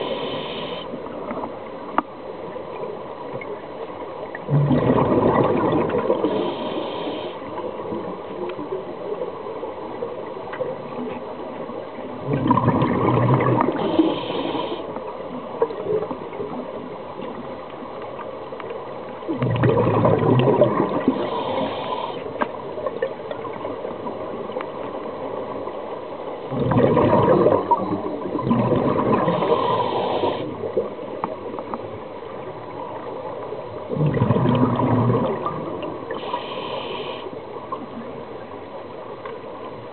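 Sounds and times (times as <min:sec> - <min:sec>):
steady water hiss: 0:00.0 - 0:39.9
exhaled breath bubbling underwater: 0:04.5 - 0:07.4, 0:12.2 - 0:14.9, 0:19.3 - 0:22.3, 0:26.5 - 0:30.7, 0:33.9 - 0:37.3.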